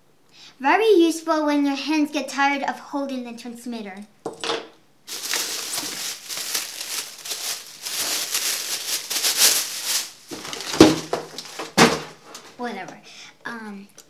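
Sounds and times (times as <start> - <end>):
plastic bag crinkling: 5.1 - 12.6.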